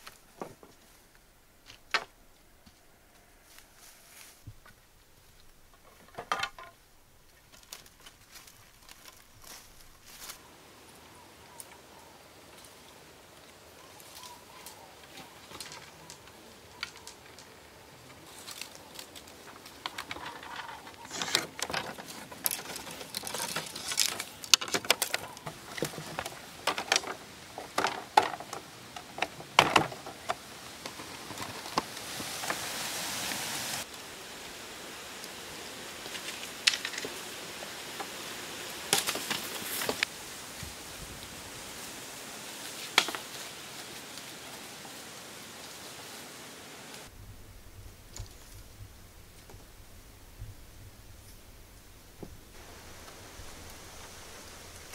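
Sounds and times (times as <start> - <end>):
rustling: 0.0 - 10.6, 11.5 - 54.9
steady hiss: 0.0 - 54.9
bamboo clicking and knocking: 1.6 - 2.8, 5.4 - 10.4, 14.2 - 32.6, 36.0 - 38.2, 38.9 - 40.1, 42.8 - 43.4.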